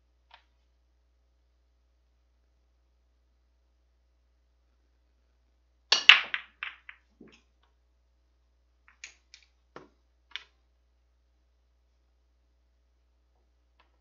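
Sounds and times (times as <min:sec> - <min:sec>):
balls cracking into rack: 0:05.9 - 0:07.4
pool balls clicking together: 0:05.9 - 0:07.5, 0:08.8 - 0:10.6.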